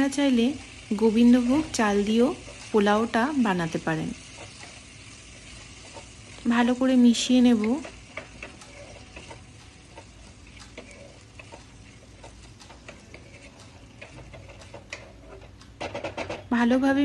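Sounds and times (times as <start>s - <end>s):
oil sizzling: 0.0s - 17.0s
spatula scraping a pan: 4.2s - 6.4s, 7.4s - 16.5s.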